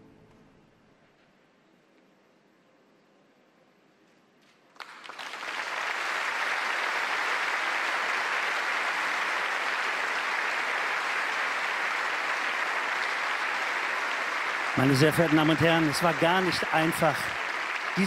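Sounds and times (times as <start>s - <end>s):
audience applause: 4.8s - 18.0s.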